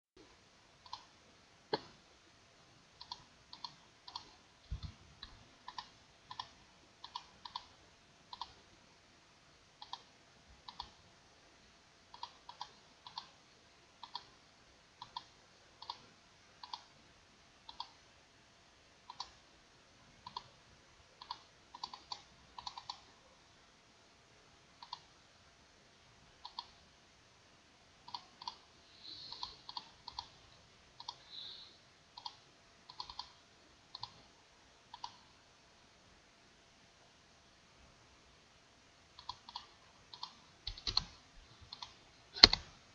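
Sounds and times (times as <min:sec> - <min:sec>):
faint steady hiss: 0:00.2 - 0:42.9
computer mouse clicking: 0:00.8 - 0:01.1, 0:01.7 - 0:02.0, 0:03.0 - 0:08.6, 0:09.8 - 0:11.0, 0:12.1 - 0:13.4, 0:14.0 - 0:14.4, 0:15.0 - 0:17.0, 0:17.7 - 0:18.0, 0:19.0 - 0:19.4, 0:20.2 - 0:20.6, 0:21.2 - 0:23.2, 0:24.8 - 0:25.1, 0:26.4 - 0:26.8, 0:28.0 - 0:30.4, 0:31.0 - 0:34.3, 0:34.9 - 0:35.4, 0:39.2 - 0:42.7.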